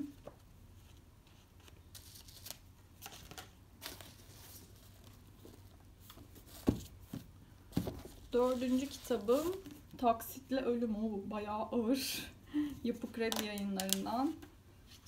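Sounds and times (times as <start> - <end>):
book pages turning and rustling: 0.2 - 10.0.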